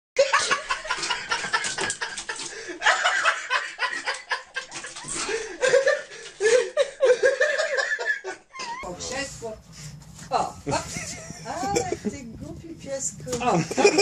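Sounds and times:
person laughing: 10.7s - 12.2s, 13.5s - 14.0s.

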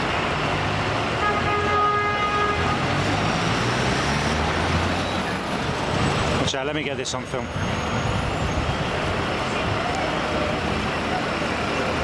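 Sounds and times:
traffic engines humming: 0.0s - 12.0s
vehicle horn: 1.2s - 3.0s.

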